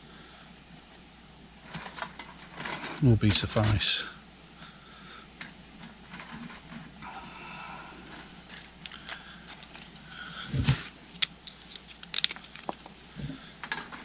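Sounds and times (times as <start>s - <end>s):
dry twigs rustling and crackling: 8.1s - 14.0s.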